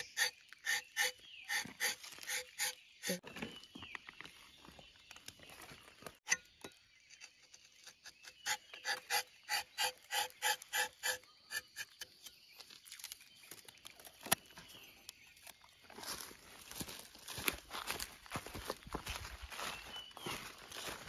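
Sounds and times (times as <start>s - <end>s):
knife cutting tree bark: 0.0s - 3.2s, 6.3s - 14.5s.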